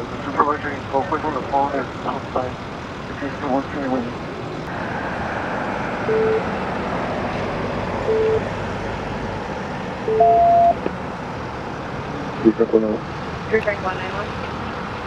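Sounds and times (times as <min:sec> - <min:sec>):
truck engine idling: 0:00.0 - 0:15.0
louder higher long beep: 0:06.1 - 0:06.4, 0:08.0 - 0:08.5, 0:10.1 - 0:10.8
short beeps: 0:06.1 - 0:06.4, 0:08.1 - 0:08.5, 0:10.1 - 0:10.8.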